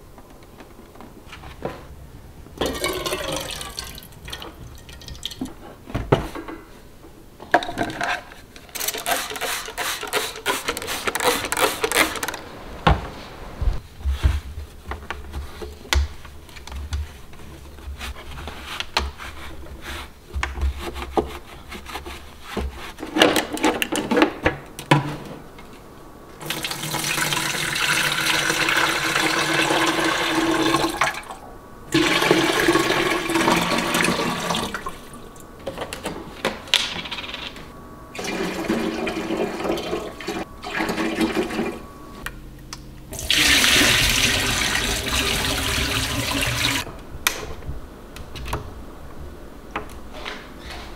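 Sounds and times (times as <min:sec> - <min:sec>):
liquid pouring into a tank: 0:02.6 - 0:05.4, 0:26.4 - 0:31.3, 0:43.1 - 0:46.8.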